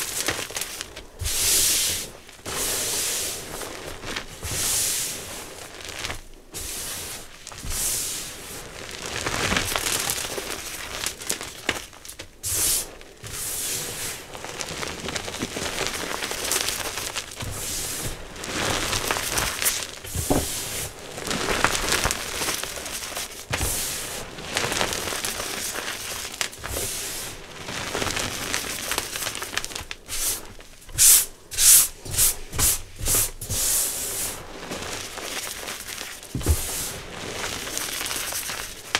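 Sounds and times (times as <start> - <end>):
hands crushing chalk: 9.0 - 24.0, 24.6 - 38.9.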